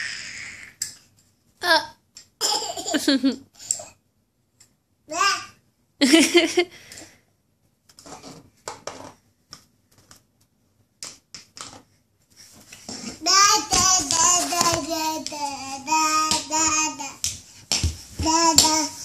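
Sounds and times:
toddler sing-song babbling: 0:13.0 - 0:17.3, 0:18.2 - 0:19.0.

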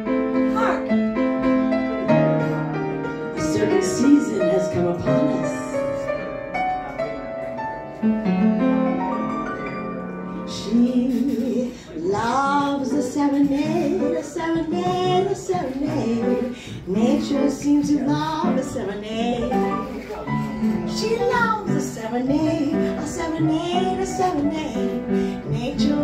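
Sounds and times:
piano playing: 0:00.0 - 0:26.0
woman singing: 0:03.4 - 0:06.0, 0:10.5 - 0:19.9, 0:20.8 - 0:26.0.

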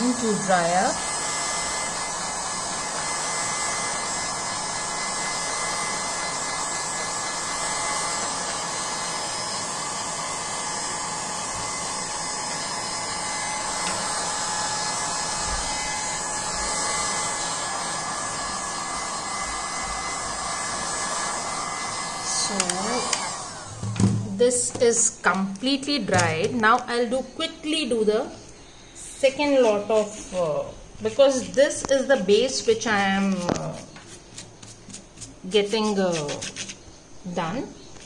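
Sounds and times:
hot-air dryer blowing: 0:00.0 - 0:24.4.

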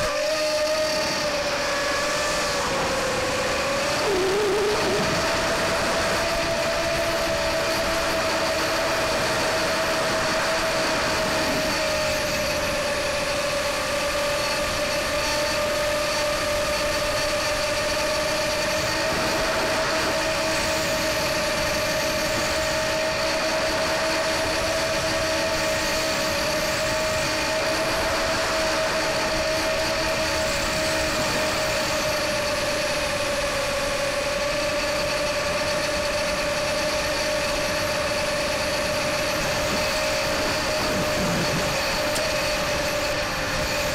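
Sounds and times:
quadcopter motors whining: 0:00.0 - 0:43.9.

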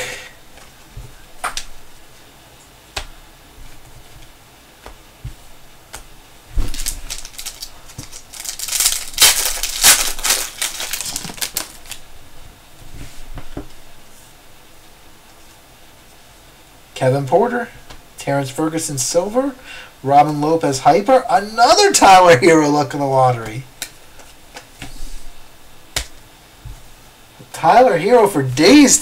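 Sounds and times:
trading cards clicking and rustling: 0:06.7 - 0:12.0.

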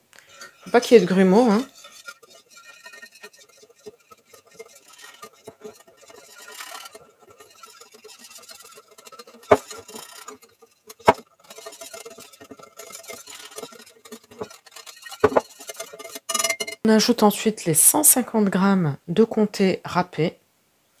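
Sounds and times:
whisk clicking against bowl: 0:00.4 - 0:16.8.

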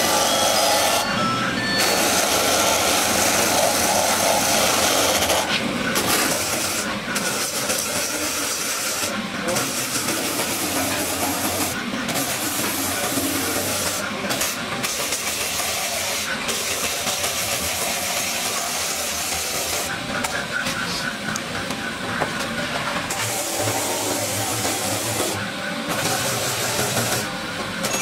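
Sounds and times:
tyre buffer grinding rubber: 0:00.0 - 0:01.0, 0:01.8 - 0:19.9.

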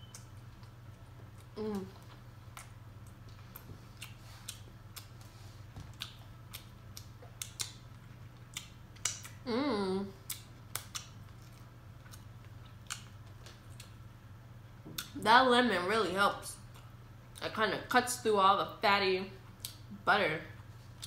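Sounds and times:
wet chewing: 0:00.0 - 0:09.4, 0:10.2 - 0:14.0
lip-smacking clicks: 0:06.0 - 0:07.8, 0:08.5 - 0:09.4, 0:10.3 - 0:11.2.

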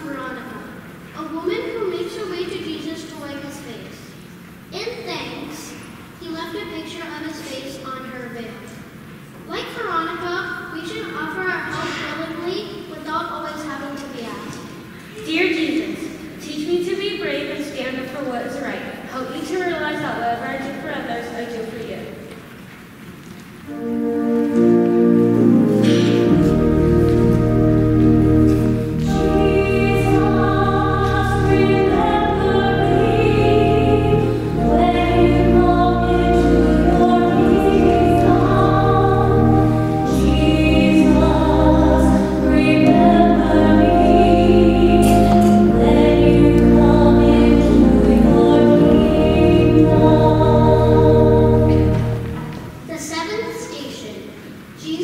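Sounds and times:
choir singing: 0:23.7 - 0:52.8
sustained low instrumental notes: 0:23.7 - 0:52.9.

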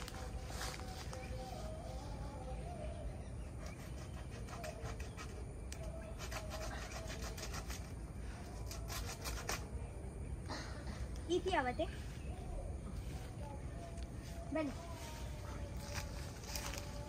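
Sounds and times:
banana leaf rustling and tearing: 0:15.8 - 0:17.0.

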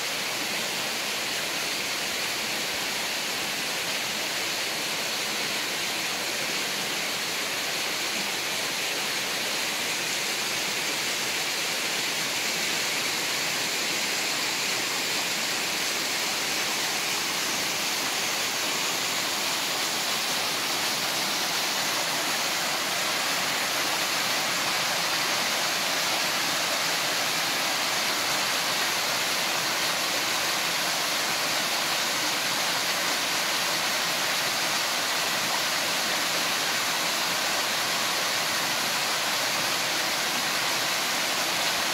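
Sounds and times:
waterfall rushing onto rocks: 0:00.0 - 0:41.9.

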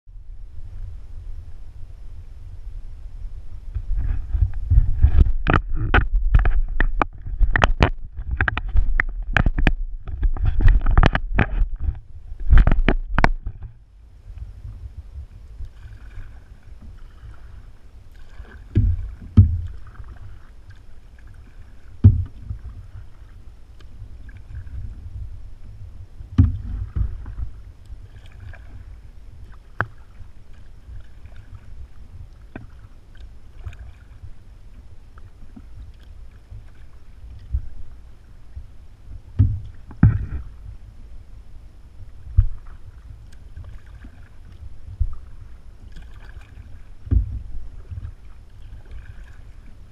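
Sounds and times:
water lapping and splashing: 0:03.5 - 0:49.9
paddle knocks on kayak hull: 0:18.7 - 0:20.2, 0:22.0 - 0:22.7, 0:26.3 - 0:27.5, 0:39.4 - 0:40.5, 0:47.0 - 0:47.4.

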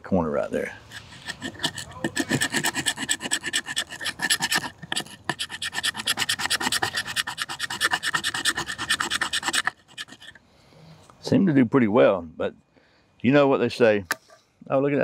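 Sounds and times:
knife rasping on wood: 0:00.8 - 0:10.4.

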